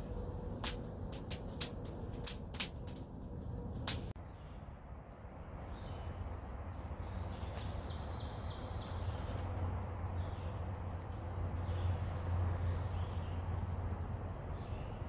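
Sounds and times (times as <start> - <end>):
wood fire crackling and popping: 0.0 - 4.2
low background rumble: 0.0 - 15.0
birds chirping: 5.6 - 15.0.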